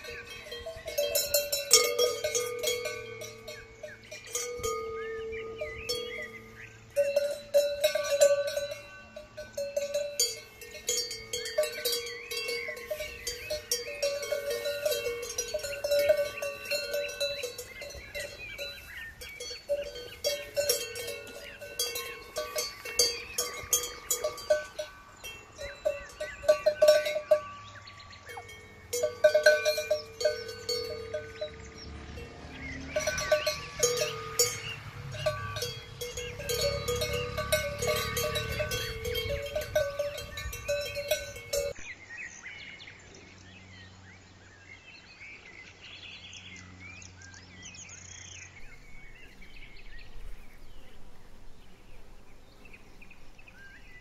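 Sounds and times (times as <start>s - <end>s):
cowbells clanking: 0.0s - 41.8s.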